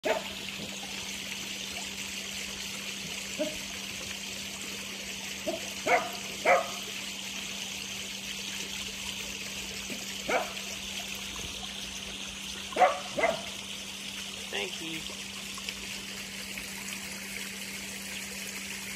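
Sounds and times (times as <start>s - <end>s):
dog barking: 0.0s - 0.3s, 3.4s - 3.6s, 5.4s - 6.8s, 10.3s - 10.6s, 12.8s - 13.6s
water trickling: 0.0s - 18.9s.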